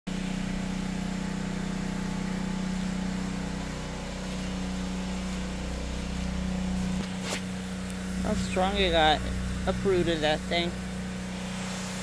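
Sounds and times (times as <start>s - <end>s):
machine humming: 0.1s - 12.0s.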